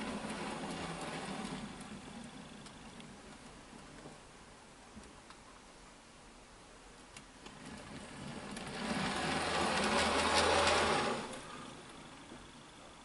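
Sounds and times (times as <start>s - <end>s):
model train motor whirring: 0.0s - 3.9s, 7.4s - 12.9s
wheels running on rails: 0.0s - 4.3s, 7.3s - 13.0s.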